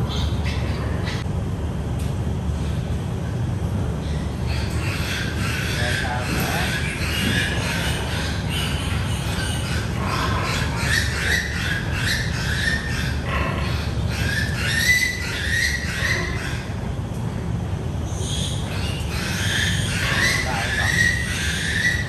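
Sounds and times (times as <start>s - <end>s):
piglets squealing: 4.4s - 16.8s, 18.1s - 22.0s.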